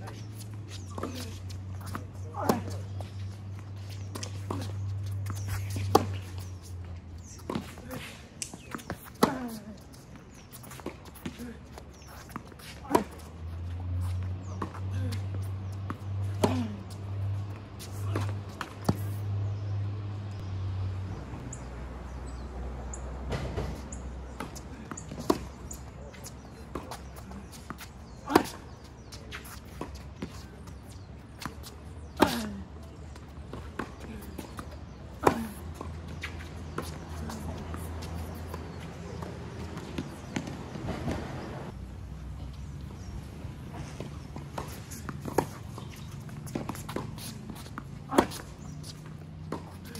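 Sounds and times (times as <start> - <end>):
quick footsteps on court: 0.0 - 19.2, 23.3 - 41.7, 42.6 - 49.9
tennis ball hit by racket: 0.8 - 3.0, 4.0 - 6.6, 7.4 - 9.6, 15.9 - 17.0, 26.4 - 30.4, 31.4 - 32.6, 33.5 - 41.5, 44.0 - 49.9
tennis ball struck and bouncing: 4.1 - 6.4, 44.4 - 49.9
footsteps on hard court: 43.7 - 49.9.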